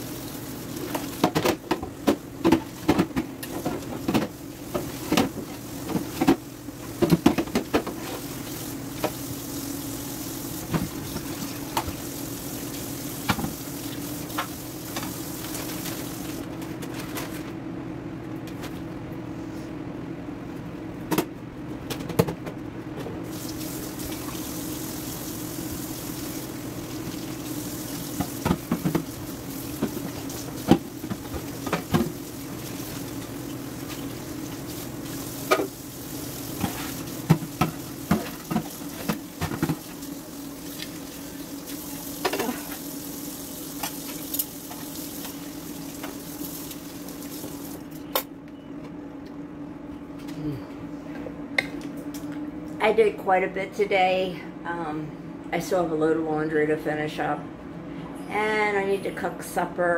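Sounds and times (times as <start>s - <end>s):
tap water running into sink: 23.3s - 41.0s, 41.6s - 47.8s.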